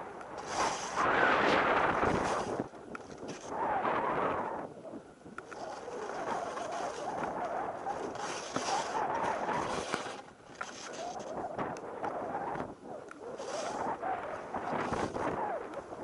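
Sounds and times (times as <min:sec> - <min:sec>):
skis hissing through powder snow: 0:00.3 - 0:04.3, 0:05.6 - 0:07.4, 0:08.0 - 0:11.4, 0:13.3 - 0:15.4.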